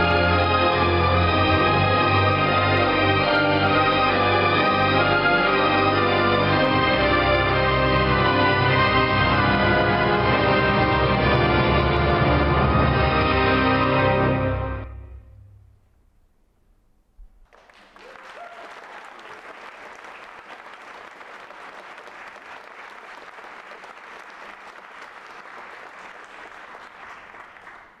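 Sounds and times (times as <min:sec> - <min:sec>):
audience applauding: 0:00.0 - 0:08.2, 0:17.4 - 0:28.0.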